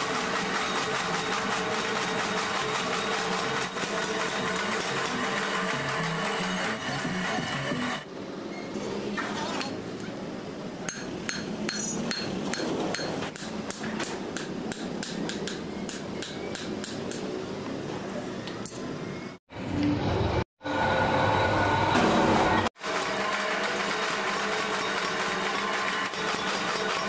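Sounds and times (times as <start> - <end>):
hammer striking blade on anvil: 10.9 - 17.3.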